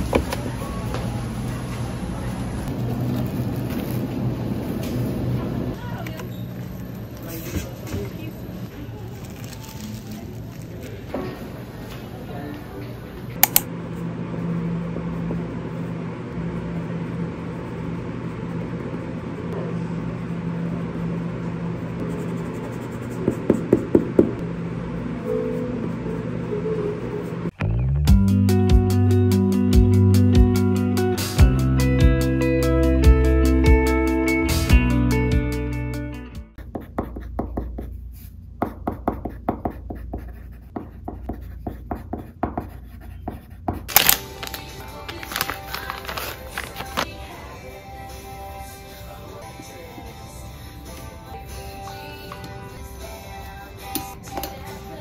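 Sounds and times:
steady low hum: 0.0s - 28.4s
pencil scratching on paper: 22.0s - 23.8s, 36.6s - 43.9s.

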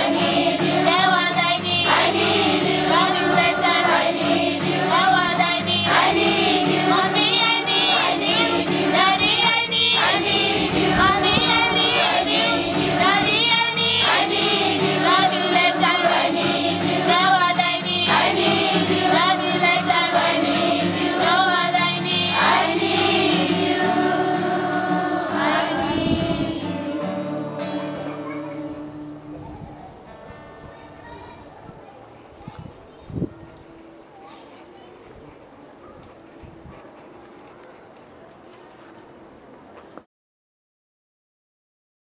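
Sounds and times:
children's choir singing: 0.0s - 29.4s
acoustic guitar: 0.0s - 35.0s.

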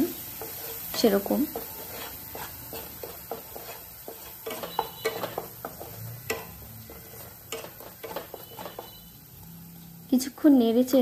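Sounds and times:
paste frying in oil: 0.0s - 11.0s
wooden spatula scraping a pan: 0.2s - 9.2s.

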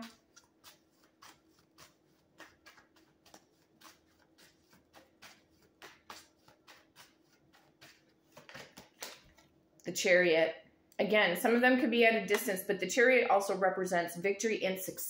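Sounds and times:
cards shuffling: 0.1s - 9.6s.

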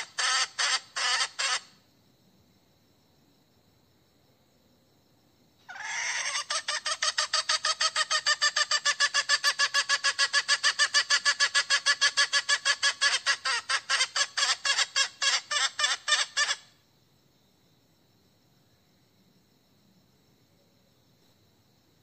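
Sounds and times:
hen clucking rapidly: 0.0s - 1.7s, 5.7s - 16.6s.

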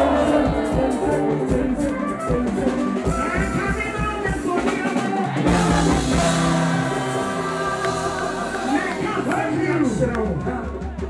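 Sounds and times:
woman singing lead: 0.0s - 2.8s, 5.2s - 9.1s
gospel band playing: 0.0s - 11.0s.

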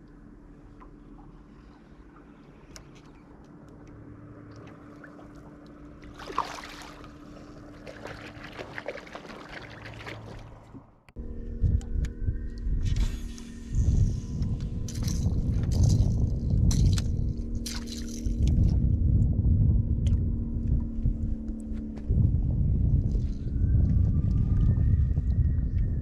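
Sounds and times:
steady low hum: 0.0s - 26.0s
water splashing: 4.4s - 11.0s
loud low rumble: 10.8s - 26.0s.

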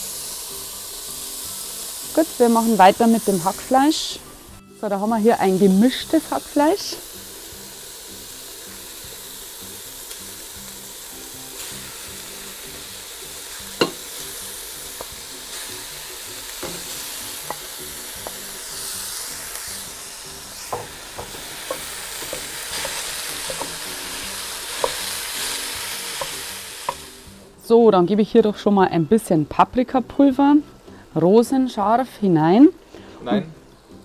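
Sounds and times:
meat sizzling in hot oil: 0.0s - 27.5s
spoon knocking against a pot: 13.8s - 14.0s.

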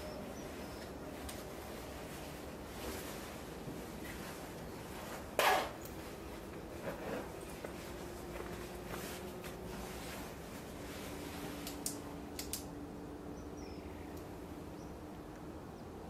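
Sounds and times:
steady low hum: 0.0s - 16.0s
sharp clicks: 11.6s - 12.7s.

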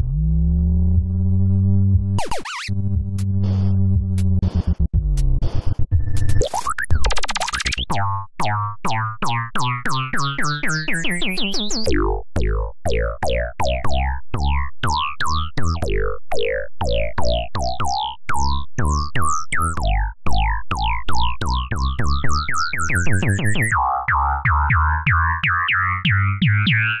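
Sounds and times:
stepping bass line: 0.0s - 27.0s
falling synth zaps: 2.2s - 2.8s.

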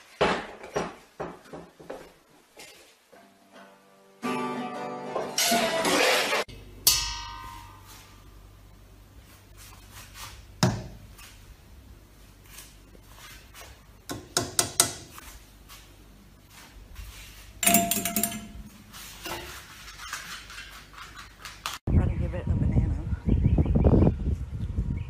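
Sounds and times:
knocks and clinks of hard objects: 17.6s - 21.8s.

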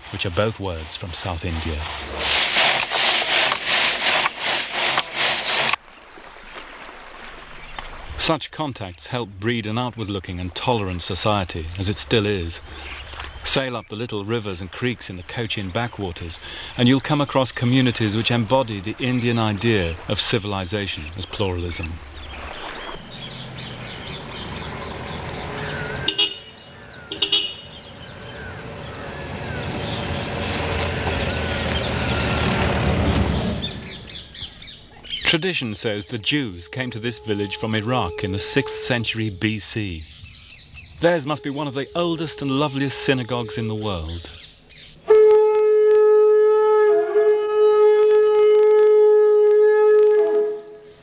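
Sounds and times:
vehicle passing: 22.0s - 34.4s
short horn toots: 26.0s - 27.8s, 35.9s - 39.0s, 41.0s - 43.9s, 45.1s - 50.9s.

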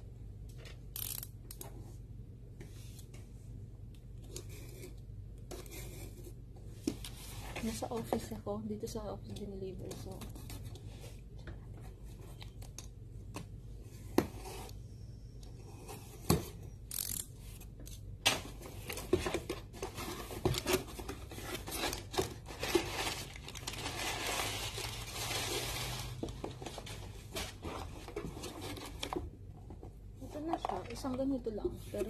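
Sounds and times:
packaging rustling: 18.9s - 29.2s.

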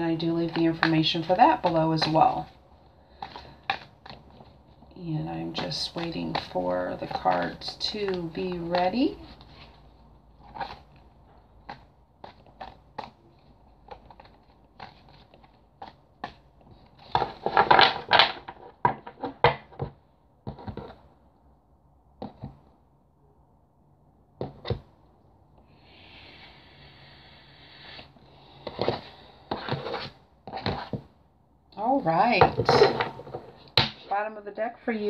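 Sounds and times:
cards being shuffled: 0.3s - 21.1s
cards sliding on tabletop: 26.0s - 31.0s.

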